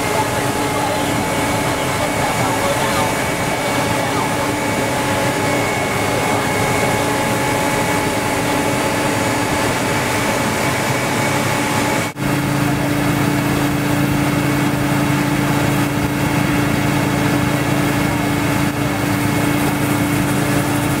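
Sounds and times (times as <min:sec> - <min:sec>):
rail vehicle machine drone: 0:00.0 - 0:21.0.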